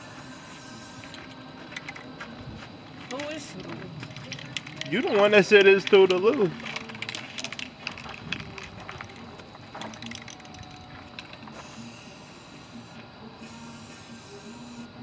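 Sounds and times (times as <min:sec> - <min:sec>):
spray paint can hissing: 0:00.0 - 0:02.0, 0:06.8 - 0:15.0.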